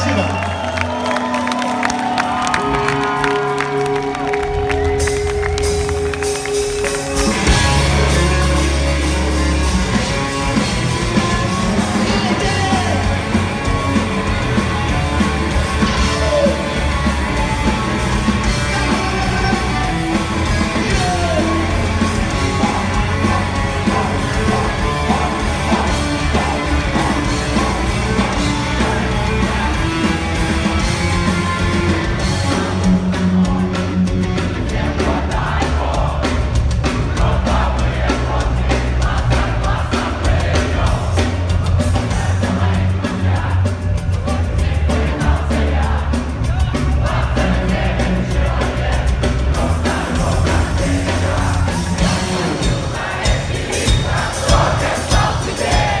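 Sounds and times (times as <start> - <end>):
punk rock band playing live: 0.0 - 56.0.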